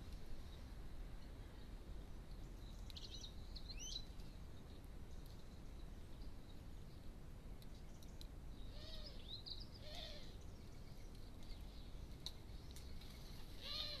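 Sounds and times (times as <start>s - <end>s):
faint clicks: 7.6s - 8.4s
short bird calls: 8.6s - 10.4s, 13.4s - 14.0s.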